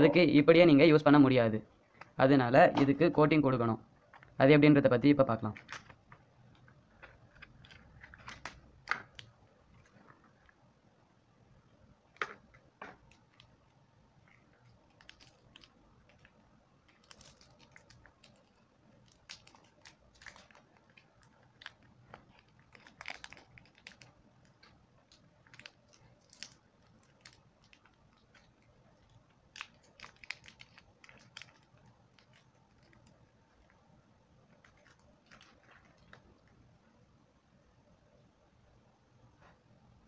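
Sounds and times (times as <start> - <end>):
plastic sachet crinkling: 5.2 - 10.6, 12.1 - 33.8, 34.4 - 36.6.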